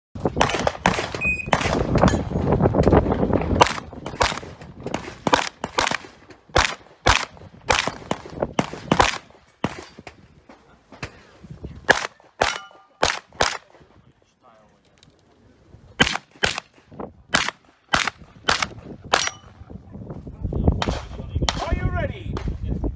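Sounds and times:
pistol shots: 0.2 - 2.2, 3.6 - 10.2, 11.9 - 13.8, 16.0 - 19.5.

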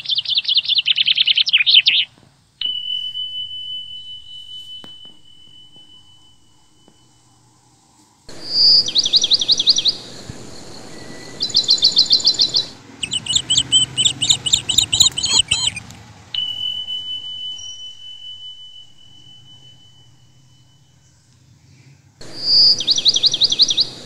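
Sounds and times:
small birds chirping: 0.0 - 7.3, 8.2 - 24.0
bell ringing: 2.6 - 21.6.

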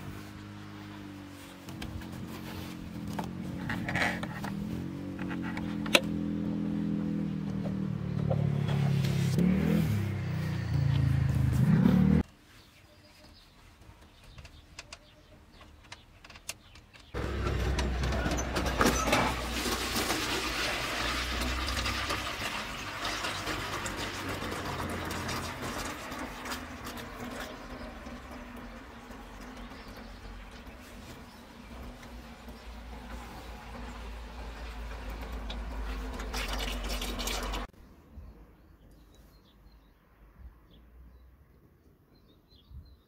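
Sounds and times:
car engine revving: 1.7 - 12.2.

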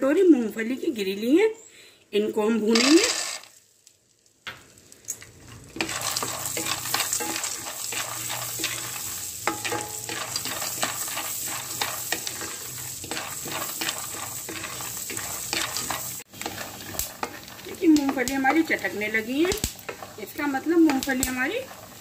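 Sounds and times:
peanuts sizzling in a pan: 2.2 - 22.0
peanuts crackling: 2.7 - 22.0
wooden spoon scraping a pan: 5.5 - 22.0.

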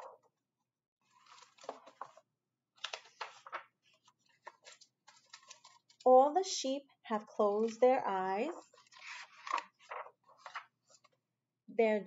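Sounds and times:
book pages rustling: 1.0 - 6.0, 7.5 - 11.2.

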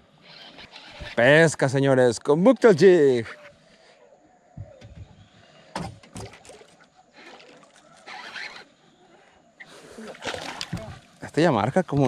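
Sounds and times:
fishing reel cranking: 0.2 - 1.2, 8.0 - 8.7.

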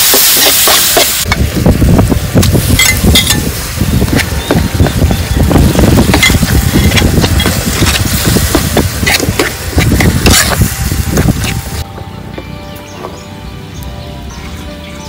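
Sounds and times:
food sizzling in a wok: 0.0 - 11.8
background music: 9.0 - 15.0.

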